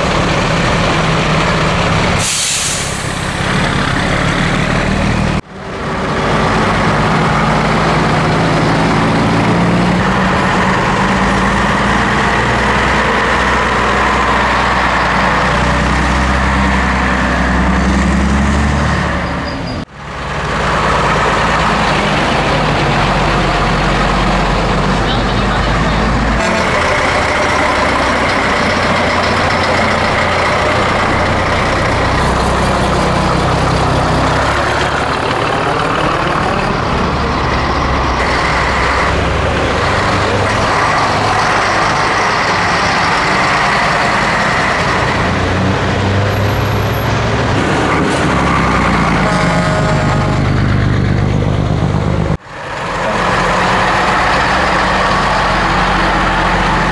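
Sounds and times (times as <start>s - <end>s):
diesel trucks driving past: 0.0s - 56.9s.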